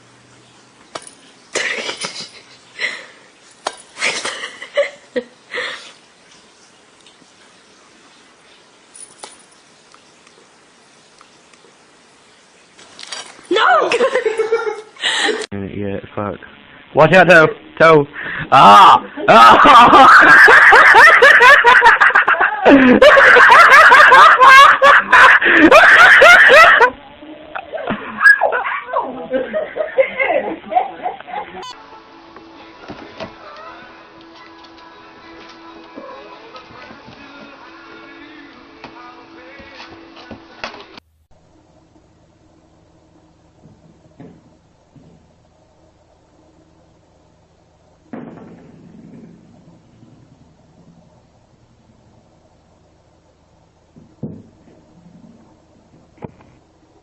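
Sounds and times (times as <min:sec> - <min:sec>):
person laughing hard: 0:13.6 - 0:15.5, 0:18.2 - 0:27.0, 0:27.6 - 0:30.5.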